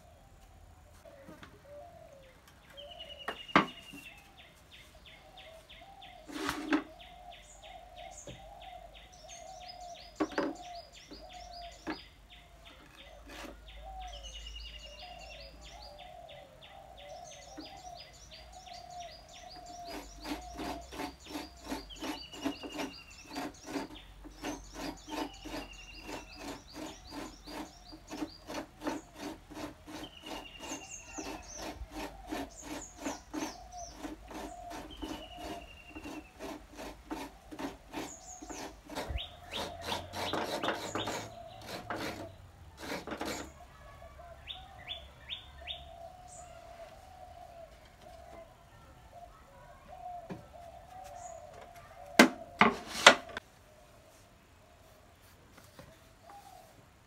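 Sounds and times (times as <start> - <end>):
birds chirping: 0.0 - 57.0
wooden knocks and clatters: 3.3 - 3.9, 10.2 - 10.6
coconut scraping on blade: 6.2 - 6.9, 13.2 - 14.2, 19.5 - 43.6, 52.2 - 53.4.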